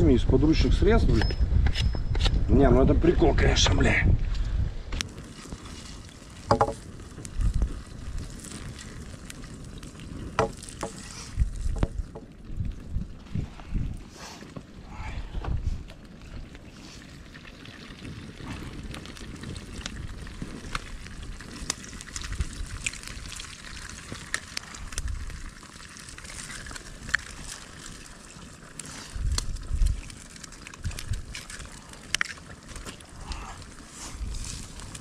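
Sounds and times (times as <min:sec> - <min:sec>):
campfire crackling and popping: 0:00.0 - 0:35.0
low rumbles: 0:14.8 - 0:16.7.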